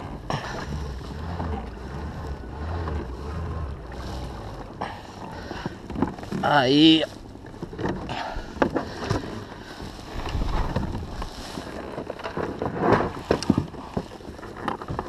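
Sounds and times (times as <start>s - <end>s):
wind rumble on microphone: 0.0s - 15.0s
knocks and clicks on plastic kayak: 7.4s - 9.4s, 10.2s - 15.0s.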